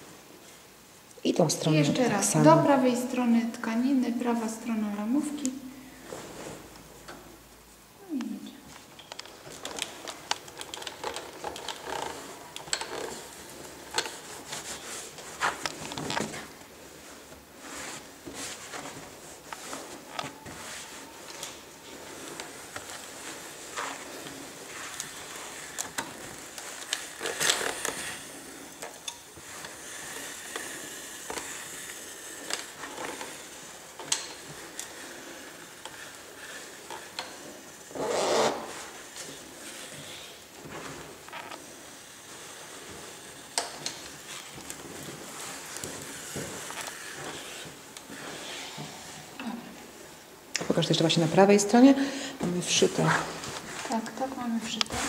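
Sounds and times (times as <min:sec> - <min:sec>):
fabric rustling: 0:03.8 - 0:07.8, 0:08.5 - 0:52.0, 0:52.6 - 0:55.0
steam iron sliding over fabric: 0:04.1 - 0:06.8, 0:09.4 - 0:50.0.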